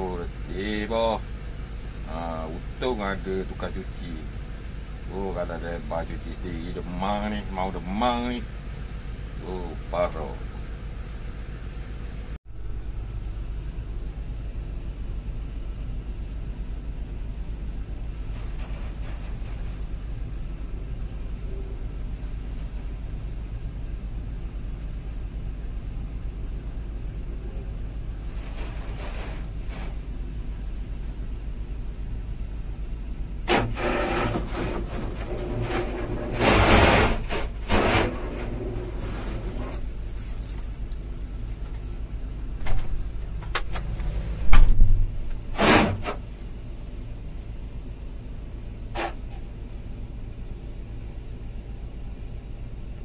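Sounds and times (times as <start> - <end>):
diesel engine idling: 0.0 - 45.6
heavy thump: 42.6 - 43.1, 44.4 - 46.2.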